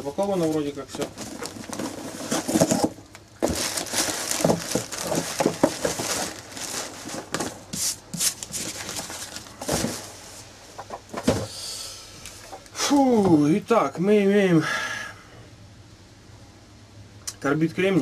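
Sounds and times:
cardboard box and paper rustling: 0.3s - 10.5s
knocks and scrapes against box: 1.0s - 10.2s.

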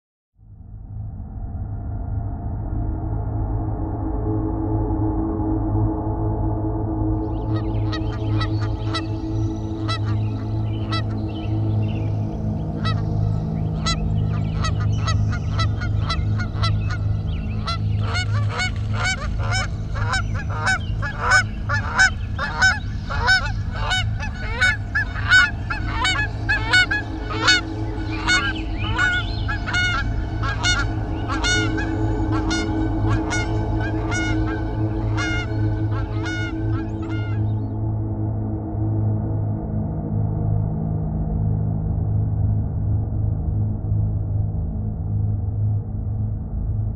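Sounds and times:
steady low drone: 0.4s - 46.9s
birds honking: 7.4s - 37.7s.

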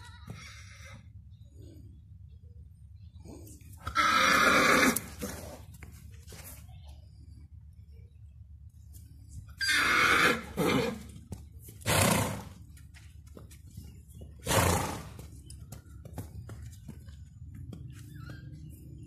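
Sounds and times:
horse neighing: 3.8s - 5.2s, 9.6s - 11.0s.

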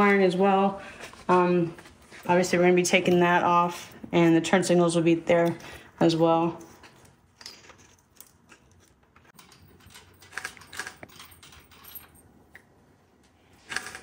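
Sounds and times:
metallic clinks of small parts: 7.4s - 12.3s.

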